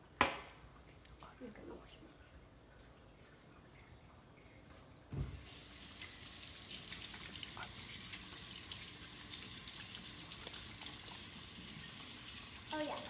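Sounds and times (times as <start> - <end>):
water running into sink: 5.2 - 13.0
water tap turned on: 5.2 - 13.0.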